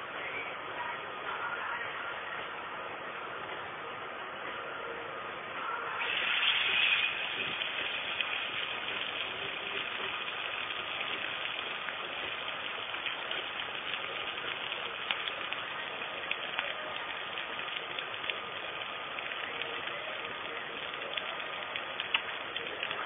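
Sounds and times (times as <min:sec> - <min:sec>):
pot simmering with hiss and pops: 0:05.6 - 0:23.0.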